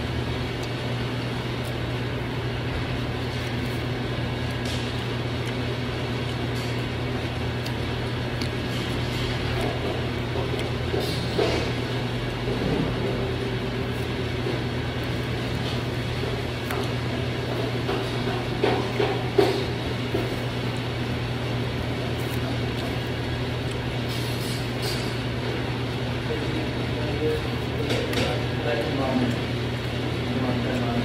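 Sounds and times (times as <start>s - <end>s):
air conditioning hum: 0.0s - 31.0s.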